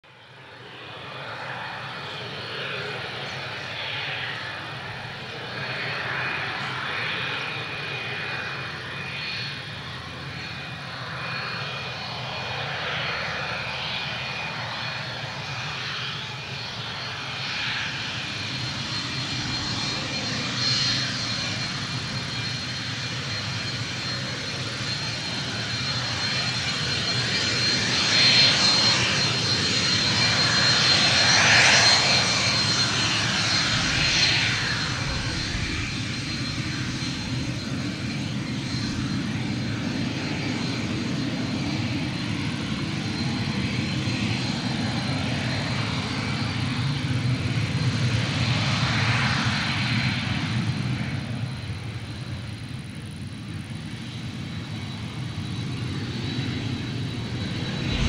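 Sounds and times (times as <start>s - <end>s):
jet engines whining: 0.1s - 58.0s
low rumble: 57.2s - 58.0s.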